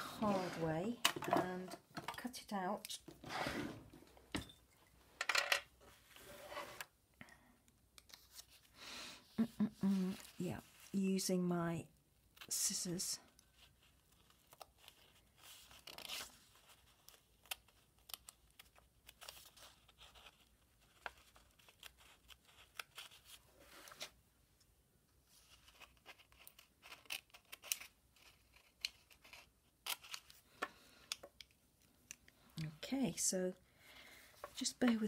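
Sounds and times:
scissors cutting paper: 25.7 - 30.3.

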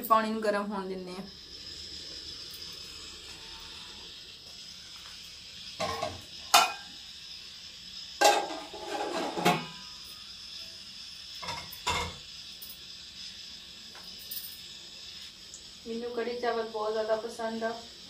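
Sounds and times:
faint steady hiss: 0.0 - 18.0
metal lid clattering on pot: 5.8 - 6.8, 8.2 - 9.8.

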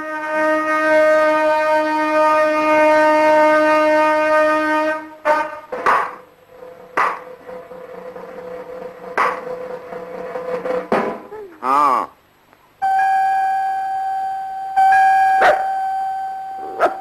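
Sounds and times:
sharp knocks: 5.7 - 6.2, 7.0 - 7.7, 9.1 - 11.3.

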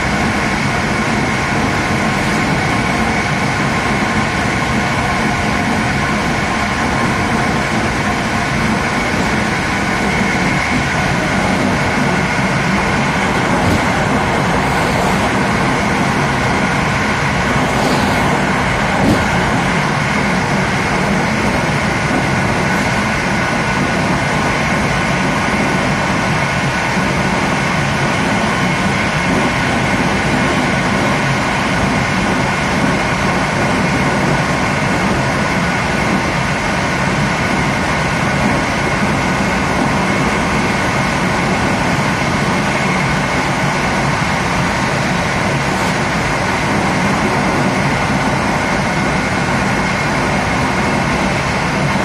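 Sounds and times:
train wheels rumbling on rail: 0.0 - 52.0.

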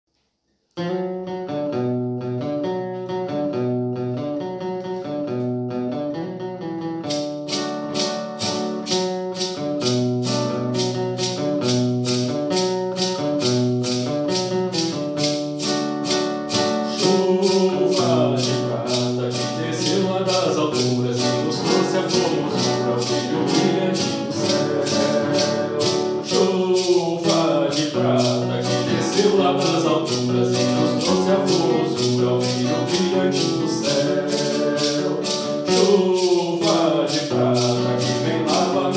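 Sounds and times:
acoustic guitar: 0.5 - 38.9
shaker rhythm: 7.0 - 38.9
person singing a hymn: 16.8 - 38.9.

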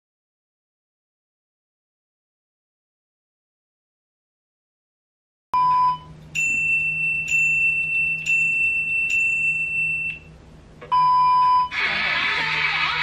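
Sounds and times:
steady electronic beep: 5.6 - 10.2.

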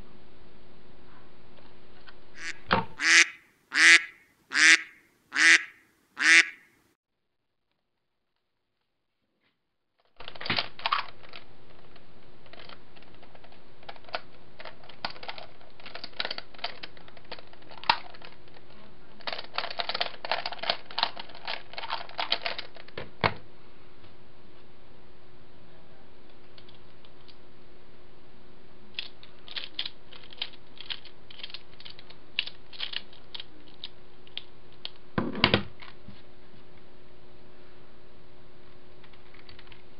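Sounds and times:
faint steady hum: 0.0 - 7.0, 10.2 - 39.9
plastic puzzle clicking: 29.0 - 34.5.

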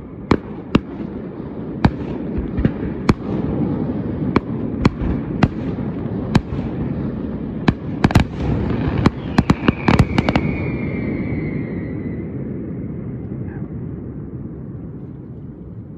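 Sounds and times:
fireworks bursting in bangs: 0.3 - 11.6
falling firework whistle: 8.0 - 13.0.

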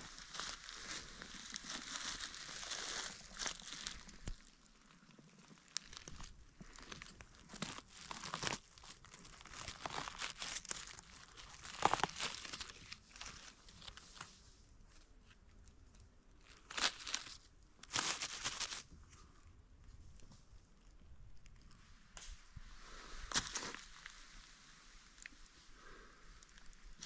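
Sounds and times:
dry leaves crackling and rustling: 0.0 - 14.0, 16.5 - 18.8.

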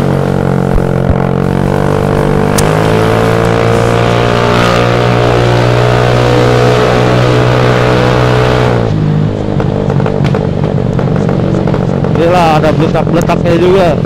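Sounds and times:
scooter engine with racing exhaust: 0.0 - 14.0.

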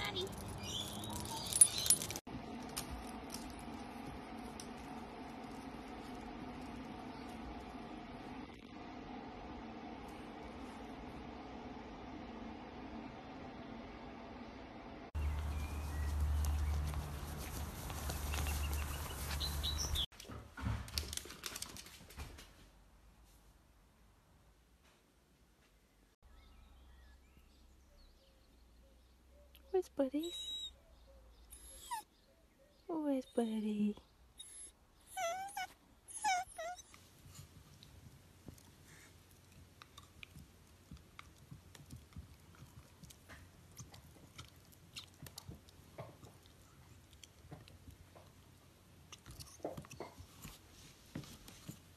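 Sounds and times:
bird chirps: 0.5 - 2.1, 15.2 - 17.0, 18.1 - 20.1.

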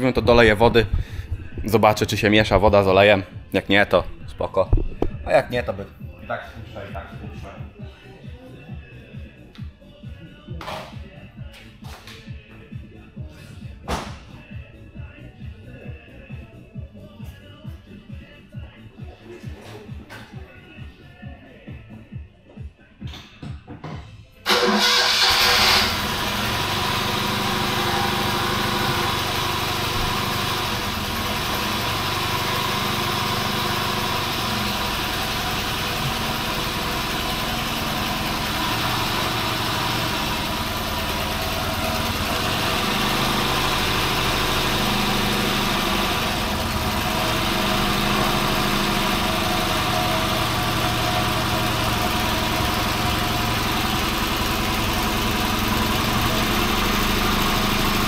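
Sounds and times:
two-cylinder engine running: 24.5 - 58.0.

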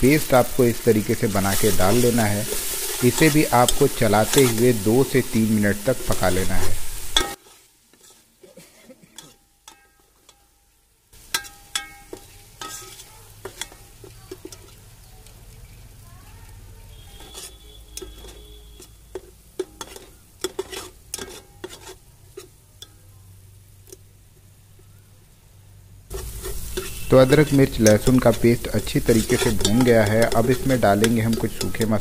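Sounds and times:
paste sizzling in oil: 0.0 - 32.0
spoon scraping and clinking a pot: 1.0 - 8.3, 9.1 - 10.6, 11.2 - 14.9, 16.9 - 23.1, 26.1 - 32.0.

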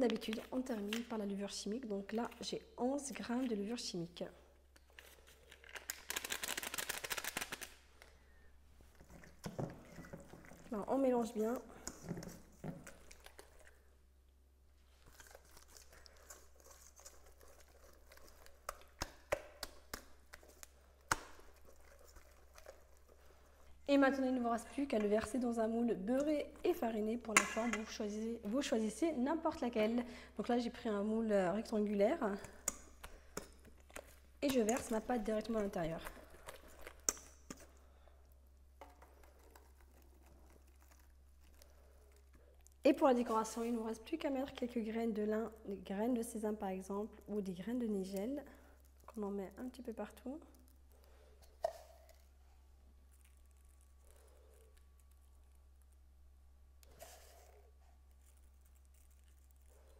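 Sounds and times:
whisk stirring batter: 15.7 - 19.1.

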